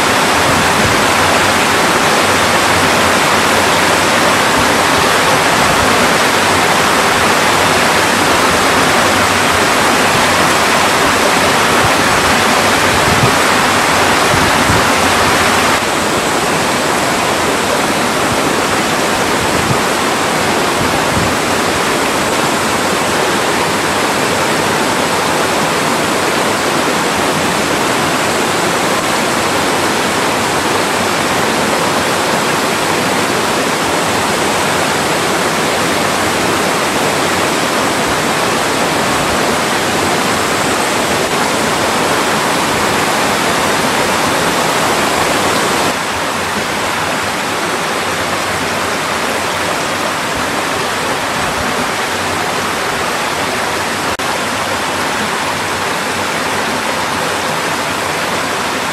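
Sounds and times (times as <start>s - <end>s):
stream rushing over rocks: 0.0s - 58.9s.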